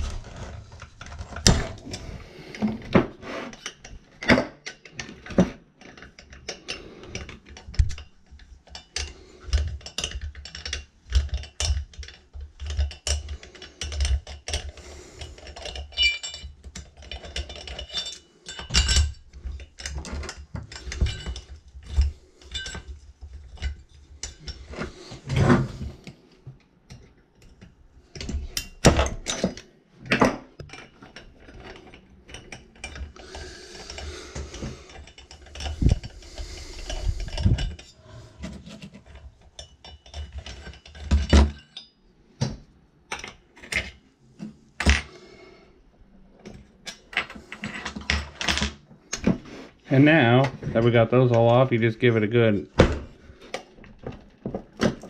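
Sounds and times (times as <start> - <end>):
hand tools clinking on metal: 8.7 - 25.0.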